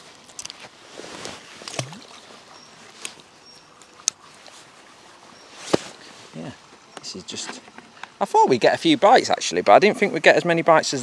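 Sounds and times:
birds chirping: 0:01.6 - 0:10.2.

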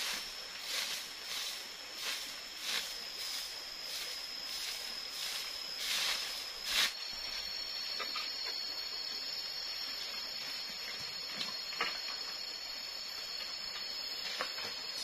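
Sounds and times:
twig broom swishing over leaves: 0:00.0 - 0:07.5
forest insects droning: 0:00.0 - 0:15.0.

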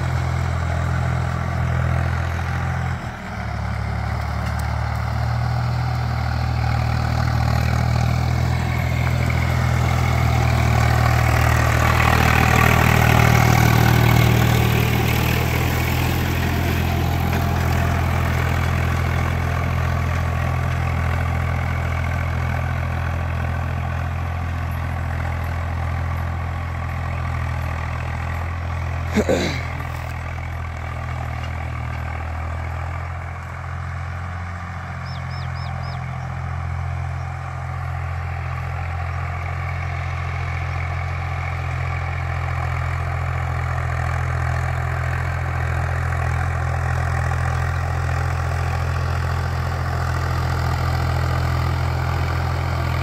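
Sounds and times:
tractor engine under load: 0:00.0 - 0:53.0.

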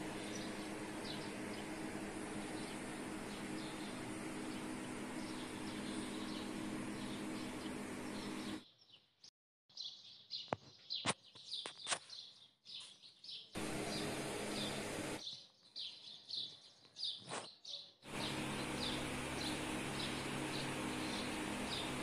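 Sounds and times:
steady hum with hiss: 0:00.0 - 0:08.6, 0:13.6 - 0:15.2, 0:18.1 - 0:22.0
birds chirping: 0:00.0 - 0:09.0, 0:09.8 - 0:22.0.

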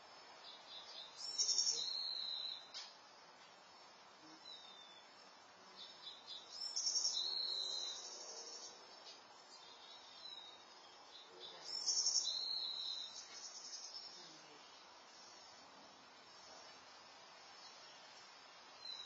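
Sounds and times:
songbird trilling: 0:00.5 - 0:02.8, 0:05.8 - 0:08.8, 0:09.6 - 0:14.8.

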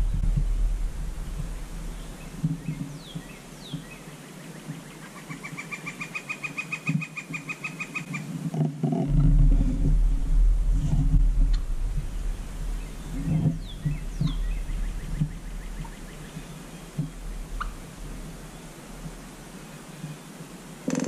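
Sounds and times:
low rumble: 0:00.0 - 0:03.9, 0:09.0 - 0:19.8
bird chirps: 0:01.8 - 0:08.2, 0:12.2 - 0:17.8.

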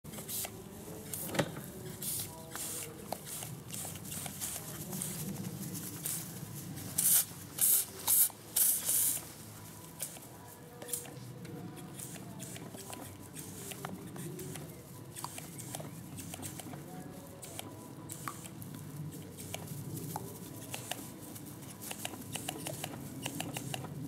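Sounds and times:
hissing water spray squirts: 0:07.0 - 0:09.2.

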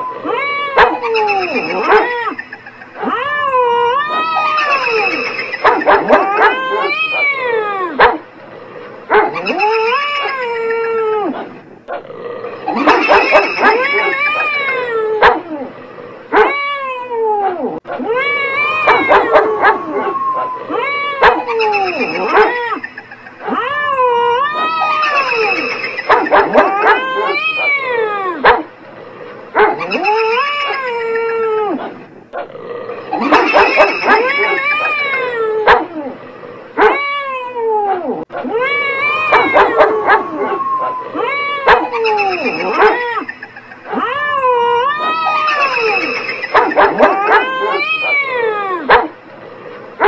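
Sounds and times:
long drawn-out wail: 0:00.0 - 0:02.3, 0:37.2 - 0:43.2
animal howl: 0:00.0 - 0:50.0.

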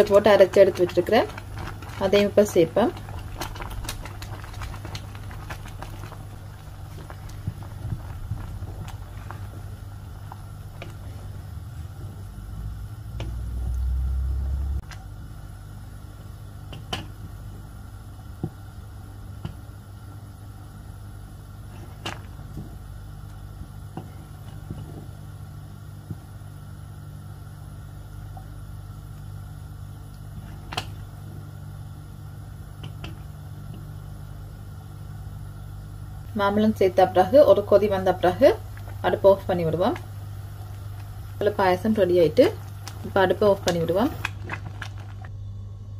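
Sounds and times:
steady low hum: 0:00.0 - 0:45.9
low rumble: 0:01.4 - 0:15.0, 0:44.1 - 0:45.9.

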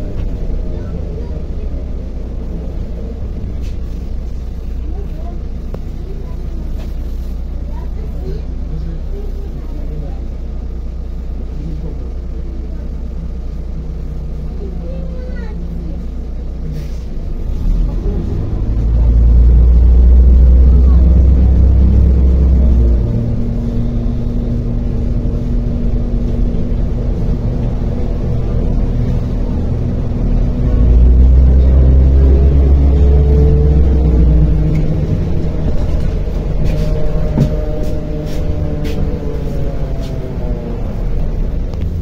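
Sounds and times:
bus engine drone: 0:00.0 - 0:42.0
heavy low rumble: 0:00.0 - 0:42.0
road noise: 0:00.0 - 0:42.0
rising whine: 0:18.4 - 0:42.0.

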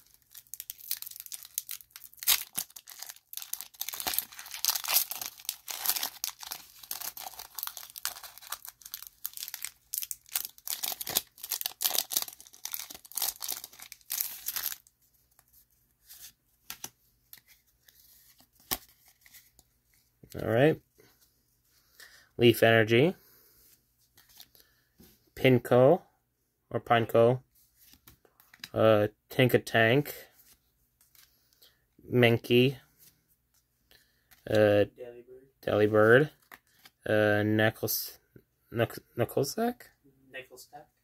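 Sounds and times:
foil wrapper crinkling: 0:00.0 - 0:14.9.

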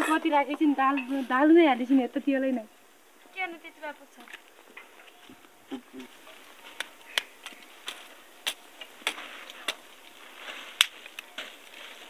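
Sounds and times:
firewood sticks snapping: 0:06.3 - 0:12.0.

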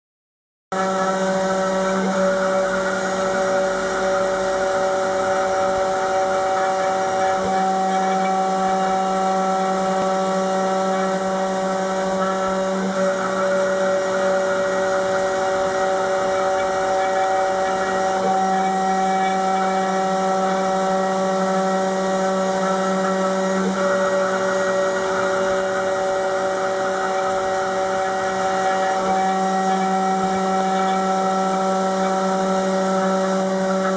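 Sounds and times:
engraver spindle hum and whine: 0:00.7 - 0:33.9.

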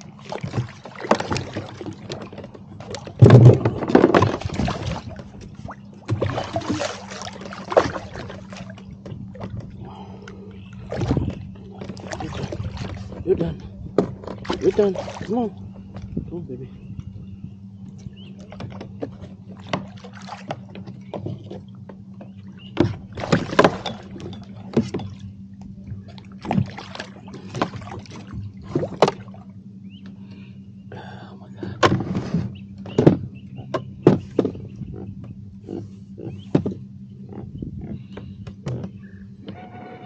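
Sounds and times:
steady low hum: 0:00.0 - 0:40.0
gear knocking on plastic kayak: 0:18.3 - 0:25.2, 0:32.7 - 0:35.4, 0:36.2 - 0:37.6.

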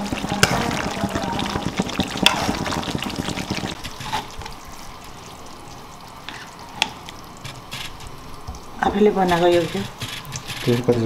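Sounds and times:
gravy pouring off ladle: 0:00.0 - 0:07.2
pan simmering hiss: 0:00.0 - 0:11.0.

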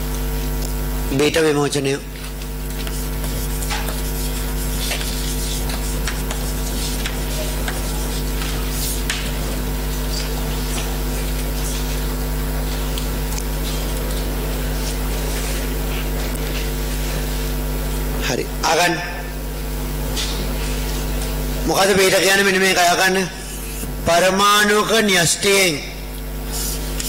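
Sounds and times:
loud electrical hum: 0:00.0 - 0:27.0
chalk scratching on blackboard: 0:02.6 - 0:12.0, 0:26.5 - 0:27.0.

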